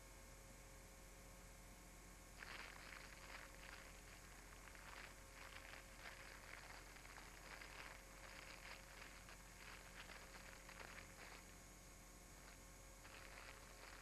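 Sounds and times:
faint steady hum: 0.0 - 14.0
soft rustling and crackling: 2.4 - 11.6, 12.4 - 14.0.

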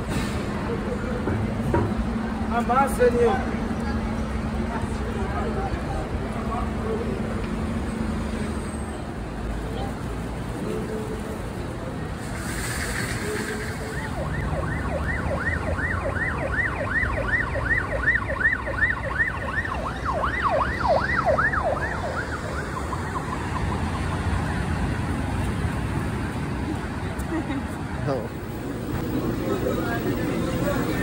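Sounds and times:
road traffic hum: 0.0 - 31.0
emergency siren yelping: 13.8 - 25.2.

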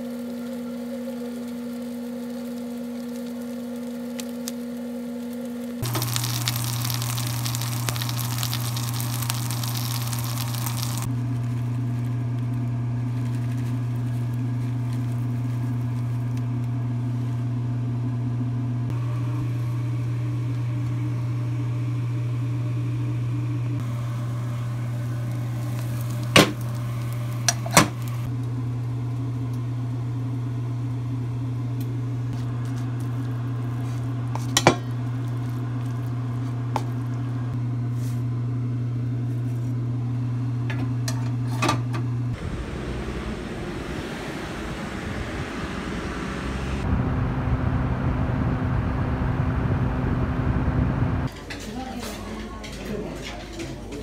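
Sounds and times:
appliance hum: 0.0 - 54.0
pancake sizzling in a pan: 5.8 - 11.1, 24.9 - 27.5.

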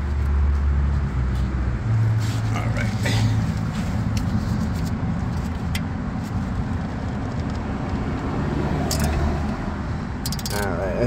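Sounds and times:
motor vehicle rumble: 0.0 - 11.0
wrench clicks: 8.9 - 9.2, 10.2 - 10.7.

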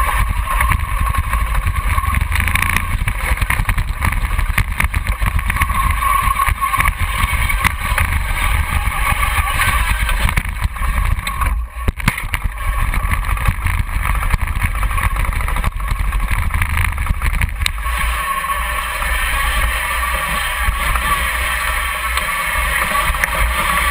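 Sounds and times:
tracked toy vehicle rumbling and whining: 0.0 - 23.9.

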